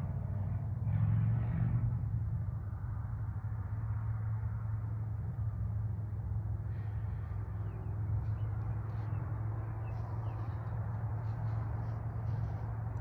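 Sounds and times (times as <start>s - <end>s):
low rumble: 5.0s - 13.0s.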